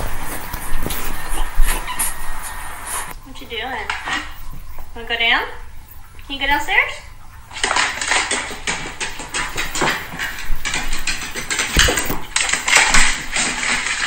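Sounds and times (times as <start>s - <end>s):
dog claws clattering on wooden stairs: 7.6s - 14.0s.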